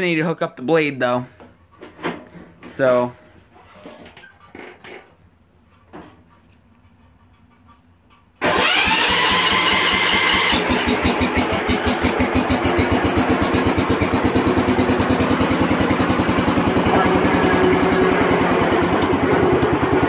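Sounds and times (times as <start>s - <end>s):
garden tractor engine running: 8.4s - 20.0s.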